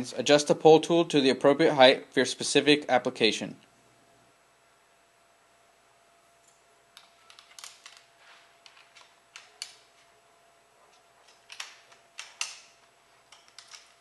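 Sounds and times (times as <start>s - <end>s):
metal clicks and rattles: 7.0s - 10.1s, 10.9s - 14.0s.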